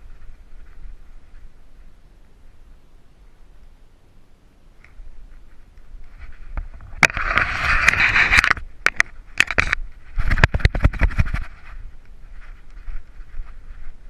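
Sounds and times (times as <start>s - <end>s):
scratchy rustling through brush: 0.0s - 2.8s, 4.9s - 14.0s
camera knocks and thumps: 6.6s - 11.5s.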